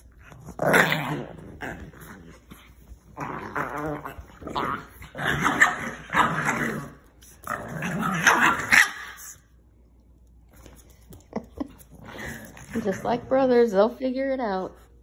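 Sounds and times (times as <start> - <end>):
puppies growling and yipping: 0.0 - 9.5, 11.7 - 13.2.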